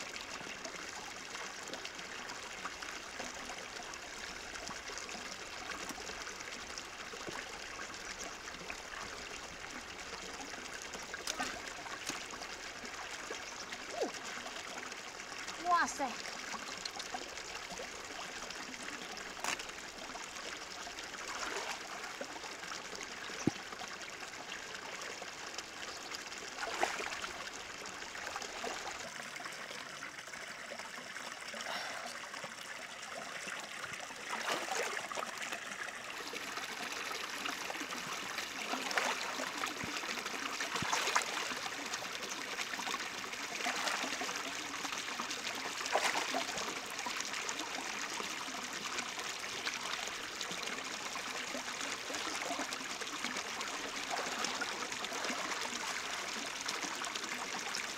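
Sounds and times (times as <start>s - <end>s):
water trickling in stream: 0.0s - 57.9s.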